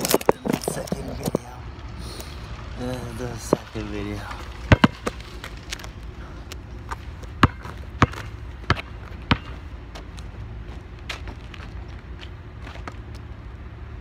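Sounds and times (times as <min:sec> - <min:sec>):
basketball bouncing on pavement: 0:03.4 - 0:13.2.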